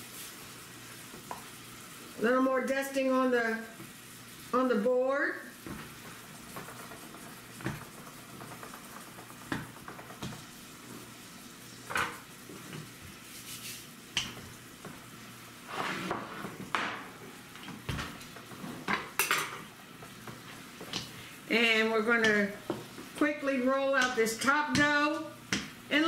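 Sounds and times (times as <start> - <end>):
rolling pin rolling on board: 14.2 - 19.2.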